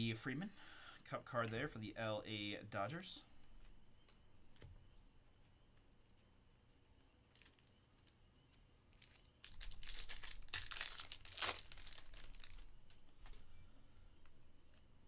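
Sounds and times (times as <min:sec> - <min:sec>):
foil wrapper tearing and crinkling: 0:09.0 - 0:12.7.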